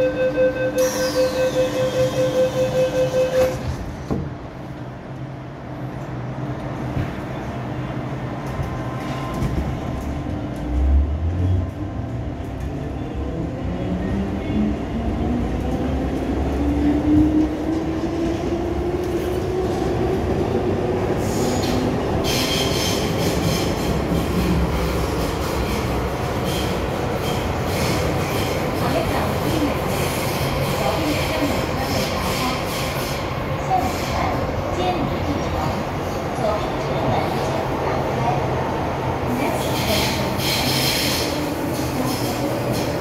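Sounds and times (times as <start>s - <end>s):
wheels hissing on rails: 39.4s - 43.0s.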